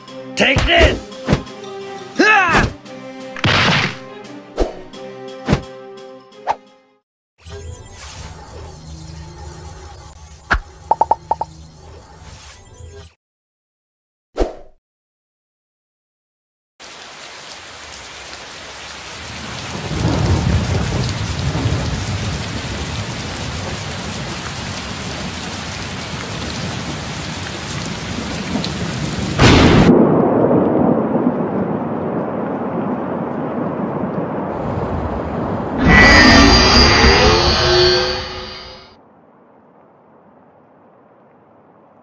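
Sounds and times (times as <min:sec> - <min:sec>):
heavy rain: 0:16.8 - 0:36.8
rolling thunder: 0:19.3 - 0:36.7
thunder crack: 0:19.6 - 0:23.9, 0:28.1 - 0:36.9.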